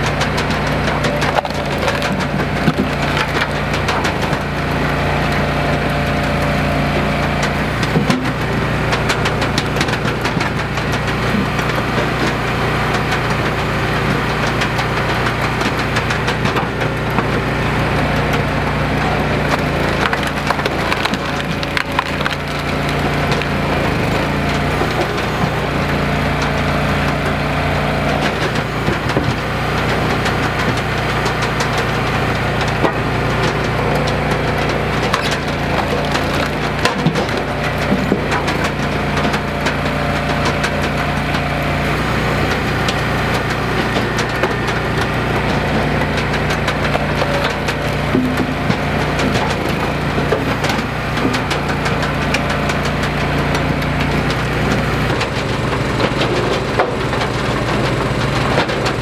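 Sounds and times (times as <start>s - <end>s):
log splitter engine running: 0.0s - 59.0s
wood cracking and splintering: 0.0s - 59.0s.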